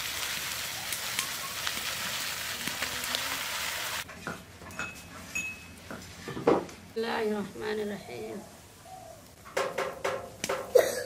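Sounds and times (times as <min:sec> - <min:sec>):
food sizzling in oil: 0:00.0 - 0:04.1.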